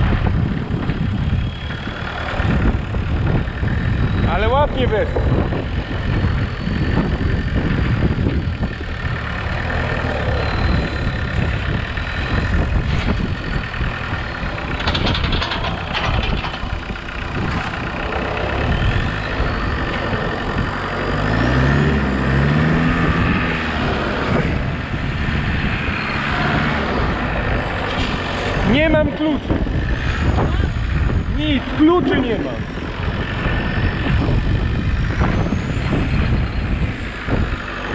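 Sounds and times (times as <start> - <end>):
tractor engine running: 0.0 - 37.9
machine rattling: 14.1 - 19.4.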